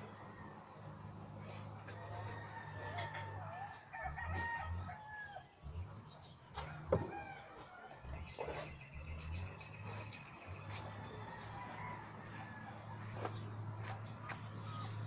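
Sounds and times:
rooster crowing: 1.9s - 5.6s, 6.6s - 8.1s, 11.0s - 13.2s.

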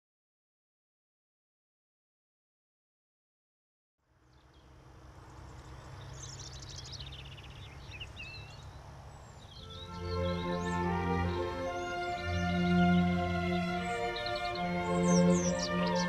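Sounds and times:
birds chirping: 4.2s - 16.0s
music with sustained notes: 9.5s - 16.0s.

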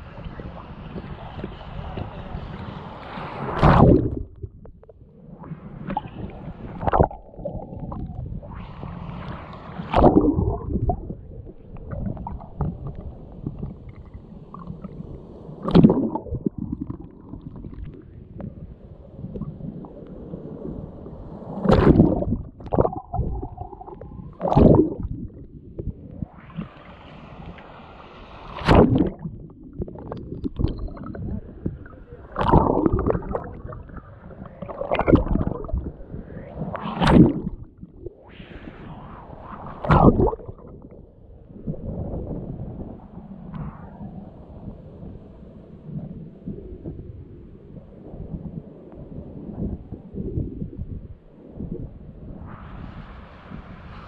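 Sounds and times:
muffled underwater wave sloshing: 0.0s - 47.1s
dull wave surge: 0.0s - 54.0s.

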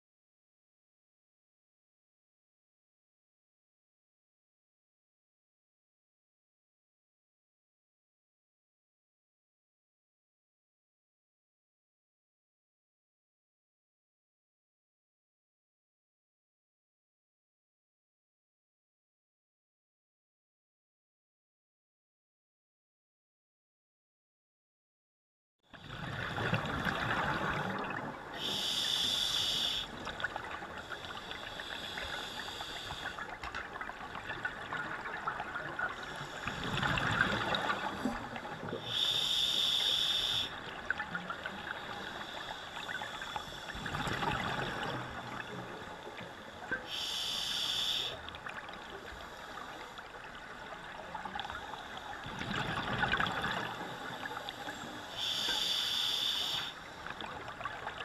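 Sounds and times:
gurgling exhaled bubbles: 25.8s - 29.0s, 33.8s - 39.7s, 43.7s - 45.5s, 52.2s - 54.4s
regulator hissing on inhale: 28.4s - 30.0s, 30.8s - 33.4s, 38.8s - 40.7s, 41.6s - 43.9s, 46.8s - 48.3s, 53.7s - 57.1s.

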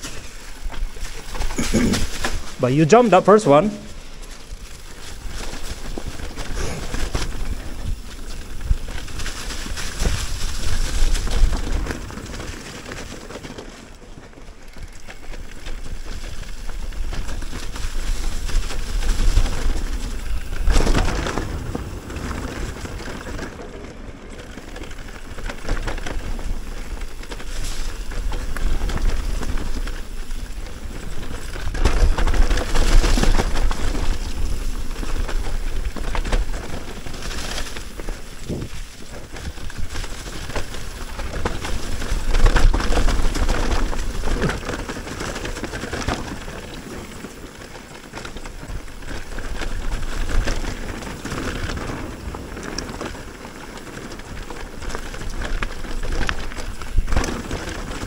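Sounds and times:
bike tyres over dirt and leaves: 0.0s - 58.0s
wind rushing across microphone: 25.2s - 46.8s.

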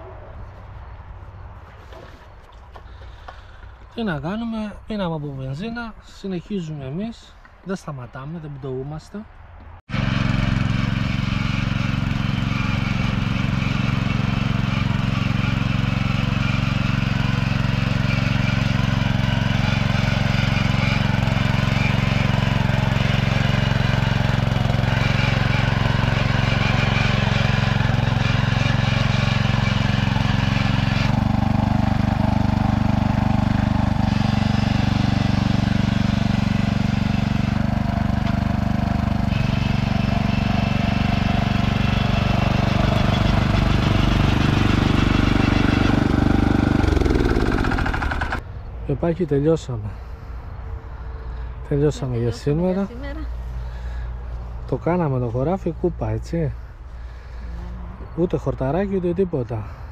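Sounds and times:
rotary tiller engine running: 9.9s - 48.4s
tines digging into soil: 9.9s - 48.4s.

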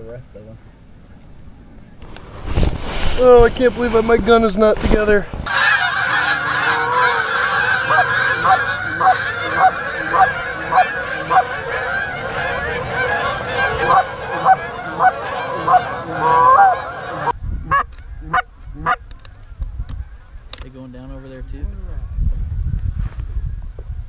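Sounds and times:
geese honking: 5.4s - 19.0s.

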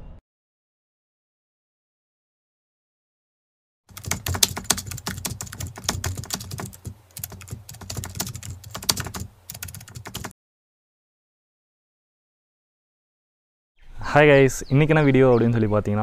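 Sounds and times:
keyboard key clicks: 3.9s - 10.3s.

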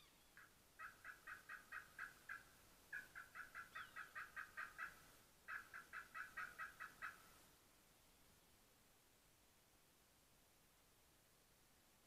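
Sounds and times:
faint turkey yelping: 0.0s - 7.4s.

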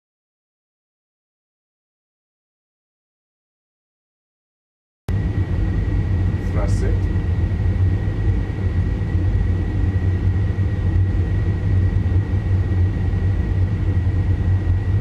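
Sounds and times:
high-pitched whine: 5.1s - 15.0s
jet engine low rumble: 5.1s - 15.0s.

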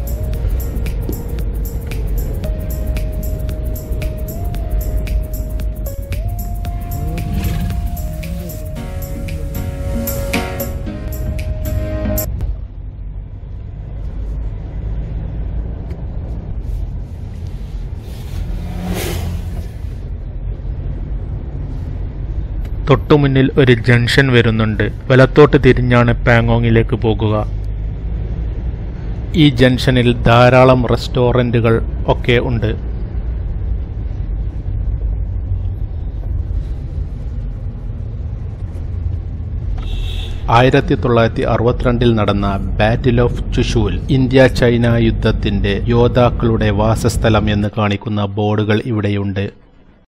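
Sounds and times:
rushing swell: 0.0s - 12.3s, 17.6s - 20.2s
car engine: 0.0s - 23.4s
car driving on road: 0.0s - 48.1s.

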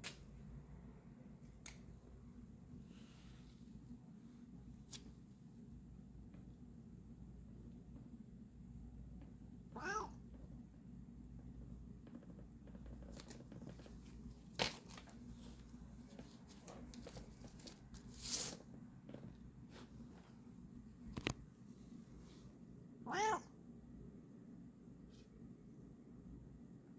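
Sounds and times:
cat meowing: 9.8s - 10.2s, 23.0s - 23.5s.

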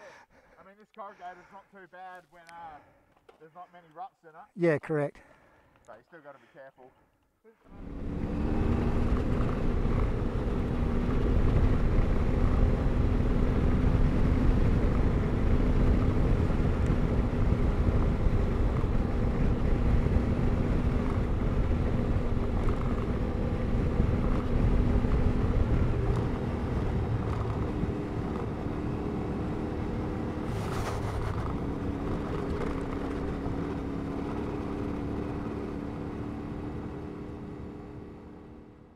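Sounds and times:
motorcycle engine running: 7.8s - 38.9s.

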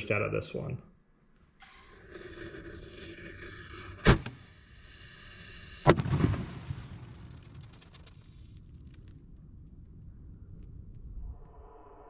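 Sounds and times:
firework bangs: 5.9s - 8.2s
firework crackle: 5.9s - 11.0s.

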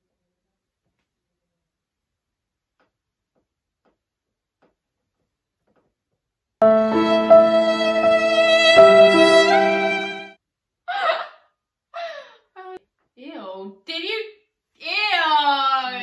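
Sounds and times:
music with long held notes: 6.6s - 10.4s.

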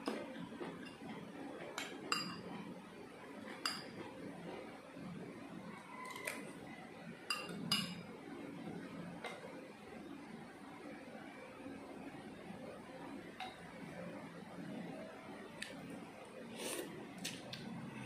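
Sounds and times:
utensils clinking against bowls: 1.8s - 2.6s, 3.5s - 4.0s, 7.3s - 8.1s.

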